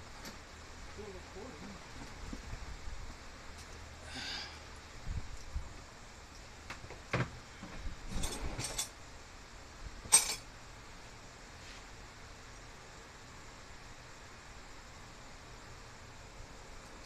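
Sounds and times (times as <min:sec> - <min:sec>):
small metal parts clinking: 0:10.1 - 0:10.4.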